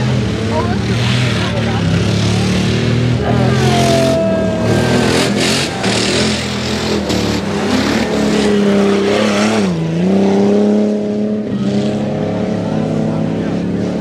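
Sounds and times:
truck engine running hard: 0:00.0 - 0:14.0.

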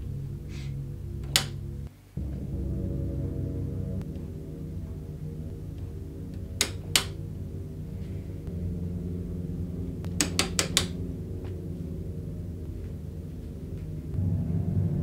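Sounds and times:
low droning film score: 0:00.0 - 0:15.0
light switch clicks: 0:01.2 - 0:01.6, 0:10.1 - 0:11.0.

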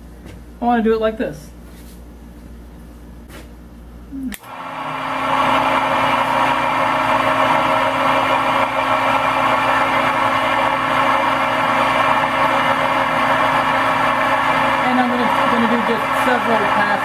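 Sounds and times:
milling machine spindle whirring: 0:04.4 - 0:17.0.

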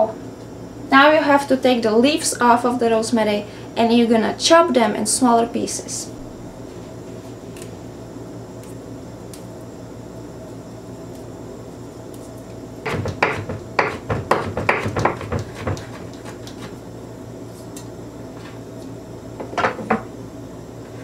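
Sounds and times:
knife chopping on wooden board: 0:12.9 - 0:16.7.

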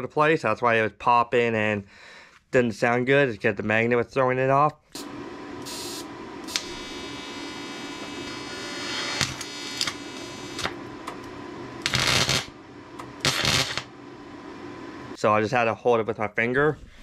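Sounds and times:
welding arc buzzing: 0:04.9 - 0:15.2
welding arc crackles: 0:05.0 - 0:14.4.

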